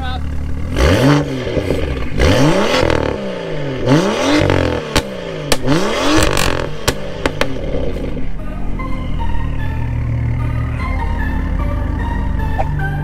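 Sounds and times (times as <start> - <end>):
sharp exhaust cracks: 0.2 - 8.3
car engines revving in blips: 0.2 - 8.4.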